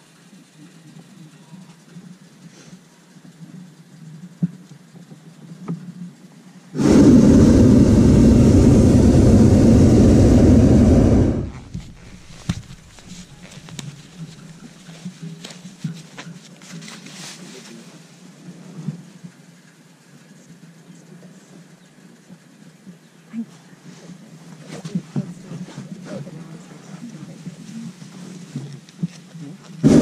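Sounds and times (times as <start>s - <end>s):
propane burner blast: 6.7s - 13.9s, 29.8s - 30.0s.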